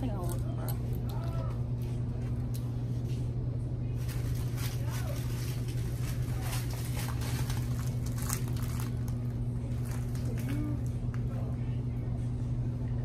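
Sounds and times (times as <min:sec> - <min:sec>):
freezer hum: 0:00.0 - 0:13.0
food packages rattling and rustling: 0:04.0 - 0:11.0
faint voices: 0:09.2 - 0:13.0.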